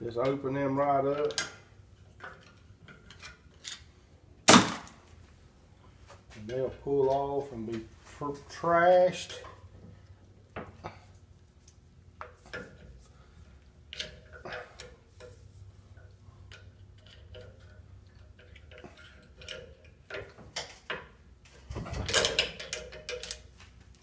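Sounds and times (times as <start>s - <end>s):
tool clatter: 13.9s - 23.8s.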